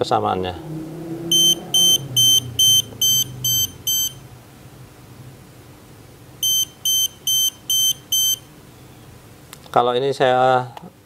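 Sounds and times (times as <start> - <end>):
voltage tester pen beeping: 1.3 - 4.2, 6.4 - 8.5.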